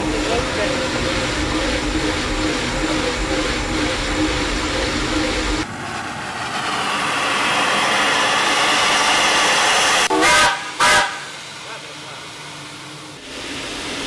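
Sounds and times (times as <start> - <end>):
low rumble: 0.0 - 10.1
steam hissing from locomotive: 0.0 - 14.0.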